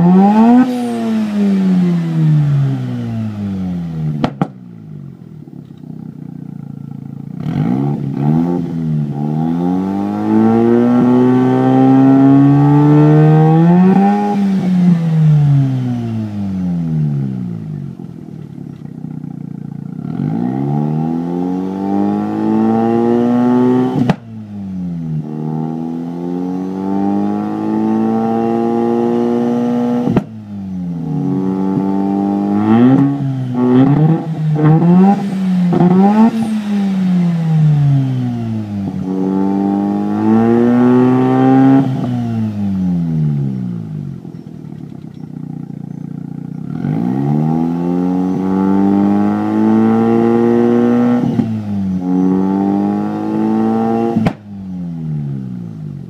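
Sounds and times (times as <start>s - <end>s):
rotary engine revving: 0.0s - 4.5s, 7.0s - 55.7s
exhaust crack: 0.0s - 9.5s, 23.9s - 24.4s, 32.4s - 48.4s, 53.2s - 54.6s.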